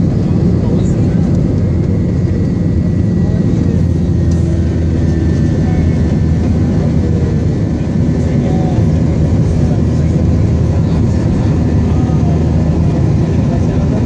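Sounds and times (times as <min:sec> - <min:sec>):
jet engine cabin roar: 0:00.0 - 0:14.0.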